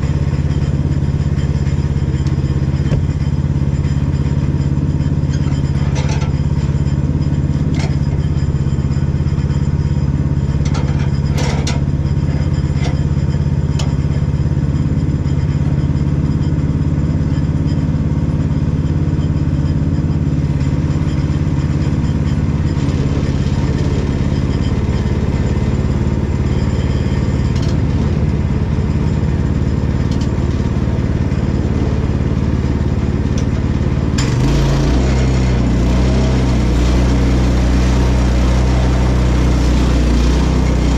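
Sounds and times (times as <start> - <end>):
sawmill engine idling: 0.0 - 40.9.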